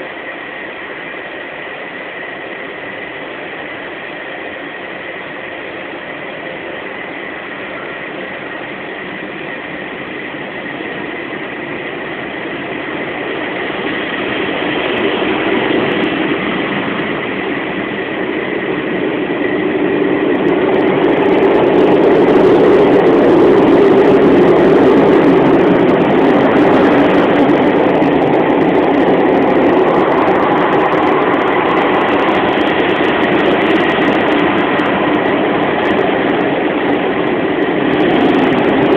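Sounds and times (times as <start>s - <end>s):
high whine: 0.0s - 38.9s.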